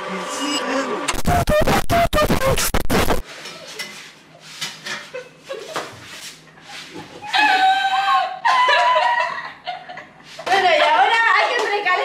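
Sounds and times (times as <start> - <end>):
distorted vocal burst: 0.0 - 3.2.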